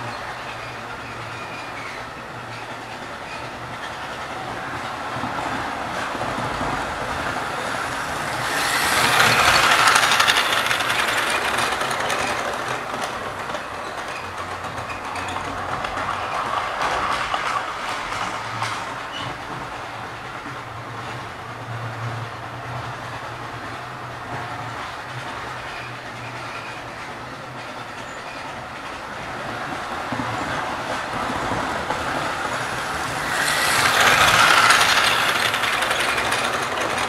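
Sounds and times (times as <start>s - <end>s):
model train wheels clicking: 0.0s - 20.7s, 28.7s - 37.0s.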